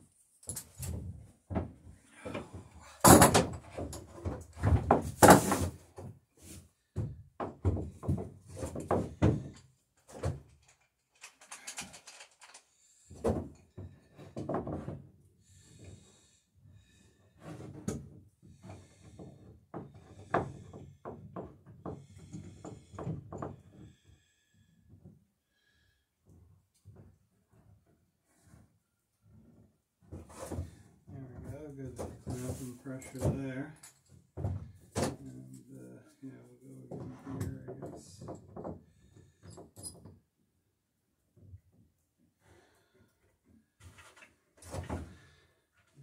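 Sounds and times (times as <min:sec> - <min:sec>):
tools clattering against wood: 0:02.2 - 0:05.7, 0:07.4 - 0:12.7.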